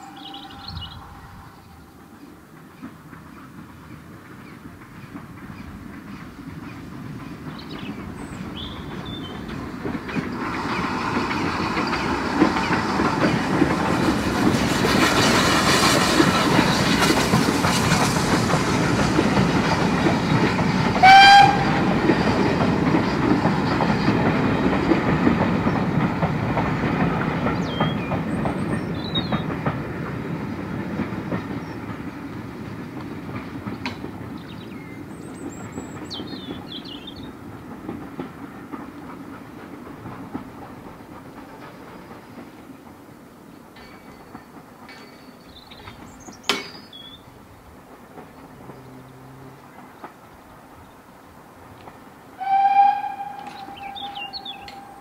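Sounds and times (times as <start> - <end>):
steam whistle blast: 0.0 - 1.6, 21.0 - 21.8, 52.4 - 55.0
bird chirps: 0.0 - 2.0, 53.2 - 55.0
train wheels rumbling on rail: 0.0 - 55.0.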